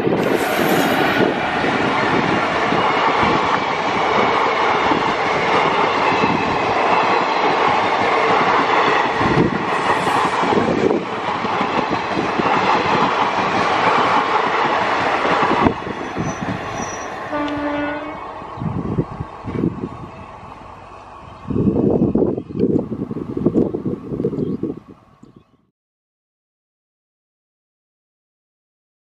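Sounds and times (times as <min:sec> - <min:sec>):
train passing with rumble: 0:00.0 - 0:25.3
train horn note: 0:16.8 - 0:18.3.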